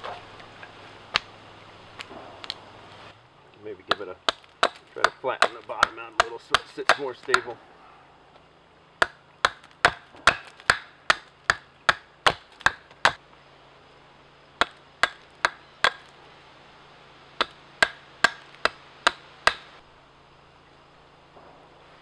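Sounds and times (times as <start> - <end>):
hatchet chopping wooden log: 3.9 - 7.6, 9.0 - 13.2, 14.6 - 16.1, 17.4 - 19.7.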